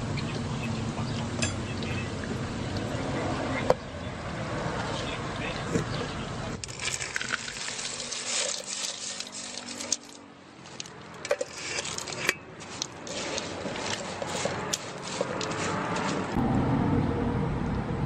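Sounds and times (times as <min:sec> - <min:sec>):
metal skimmer clinking: 0:01.3 - 0:03.0, 0:06.6 - 0:15.6
fried chips stirred rustling: 0:06.6 - 0:16.4.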